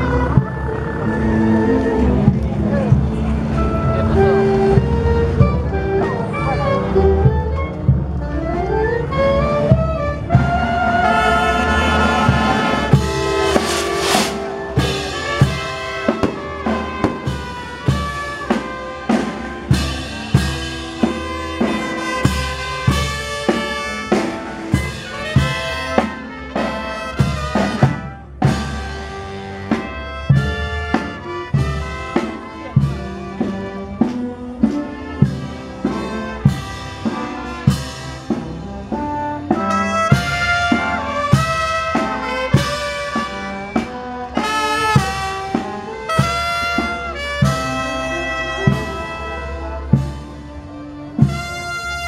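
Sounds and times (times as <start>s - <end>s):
brass band playing: 0.0s - 52.0s
steady drum beat: 11.5s - 48.0s, 51.2s - 52.0s.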